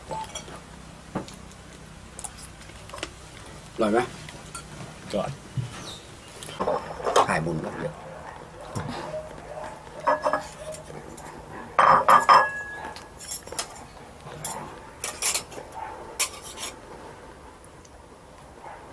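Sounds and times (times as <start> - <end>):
dishes clattering: 6.5 - 7.5, 10.0 - 15.6
spoons and plates clinking: 10.0 - 15.6.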